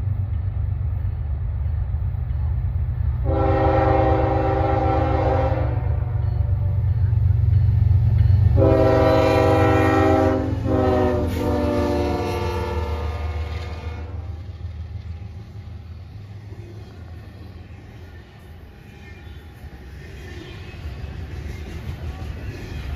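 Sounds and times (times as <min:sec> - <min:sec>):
locomotive air horn blasts: 0:03.2 - 0:06.7, 0:08.5 - 0:14.4.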